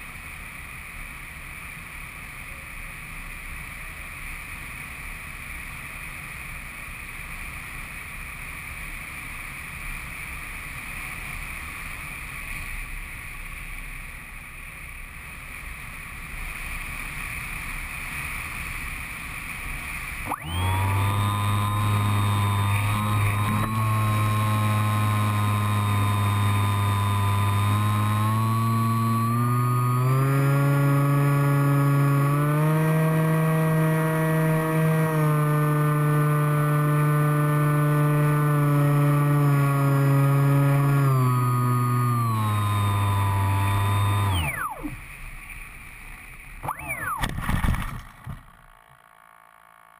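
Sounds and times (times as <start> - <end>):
electric motor and propeller whirring: 14.8 - 49.9.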